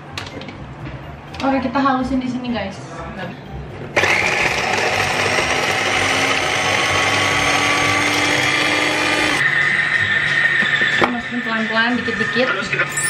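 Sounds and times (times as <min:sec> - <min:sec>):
electric chopper motor whining: 0:04.0 - 0:11.1.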